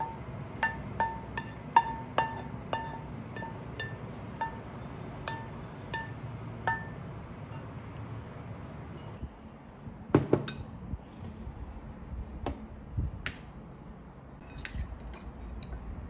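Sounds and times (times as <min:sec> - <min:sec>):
wooden spatula tapping pan rim: 0:00.0 - 0:04.7, 0:05.3 - 0:07.0.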